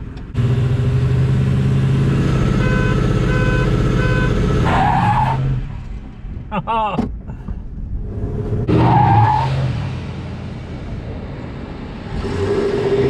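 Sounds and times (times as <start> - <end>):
tires skidding on asphalt: 4.6 - 5.8, 8.1 - 10.0
engine revving: 11.7 - 13.0.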